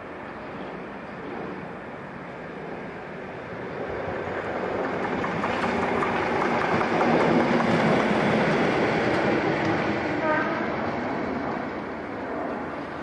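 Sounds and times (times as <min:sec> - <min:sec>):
locomotive rumble passing: 0:00.2 - 0:13.0
wheels clattering over rail joints: 0:04.0 - 0:09.9.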